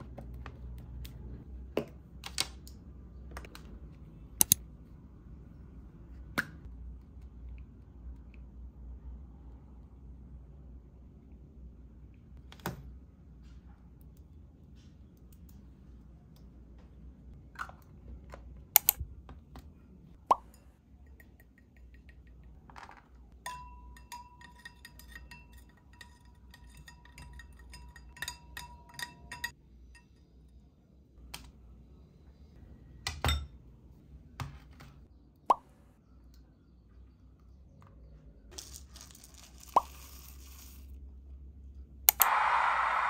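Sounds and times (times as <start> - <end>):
spoon clinking in a glass: 23.4 - 30.3.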